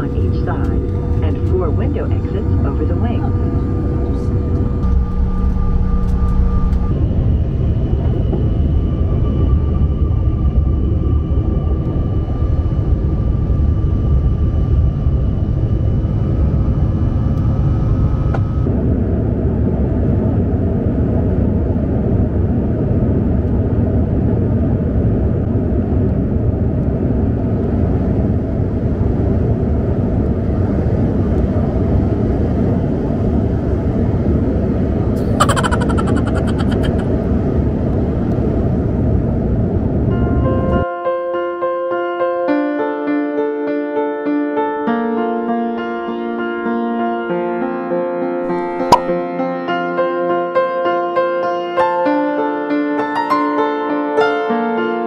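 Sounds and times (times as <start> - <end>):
airliner cabin rumble: 0.0 - 13.3
faint steady whine: 0.0 - 18.8.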